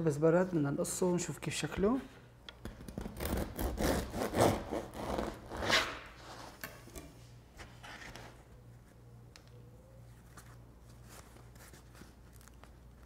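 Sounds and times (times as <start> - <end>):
bread knife sawing through loaf: 3.2 - 6.4.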